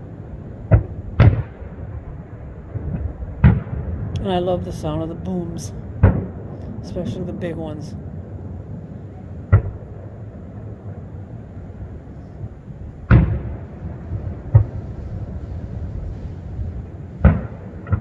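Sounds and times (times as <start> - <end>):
firework shells booming: 0.6 - 4.2, 5.8 - 6.9, 9.5 - 11.1, 13.0 - 15.4, 17.2 - 18.0.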